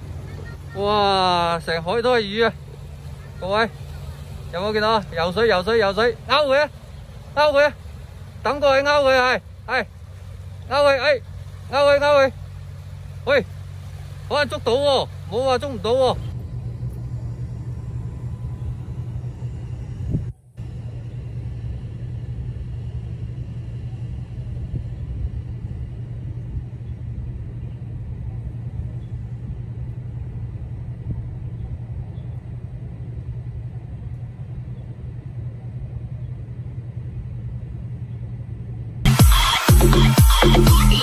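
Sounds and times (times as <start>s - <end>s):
steady low rumble: 0.0s - 41.0s.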